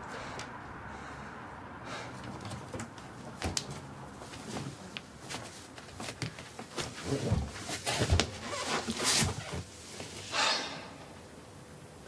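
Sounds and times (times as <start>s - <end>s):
clothing rustling: 3.4s - 10.3s
person sniffing: 10.3s - 11.0s.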